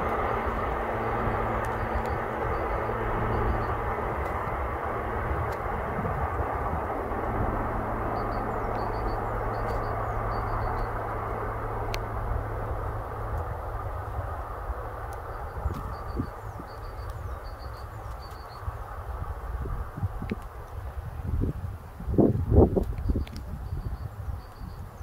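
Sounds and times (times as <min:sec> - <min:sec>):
low engine rumble and hum: 0:00.0 - 0:25.0.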